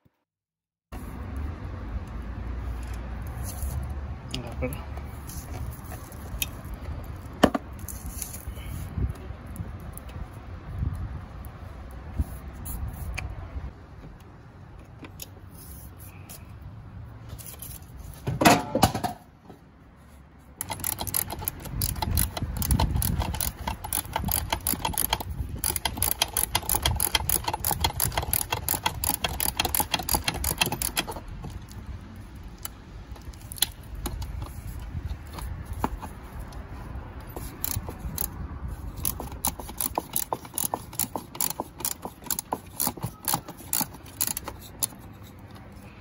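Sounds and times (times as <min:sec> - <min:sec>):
ratcheting wrench clicking: 0:20.6 - 0:36.6, 0:37.2 - 0:45.7.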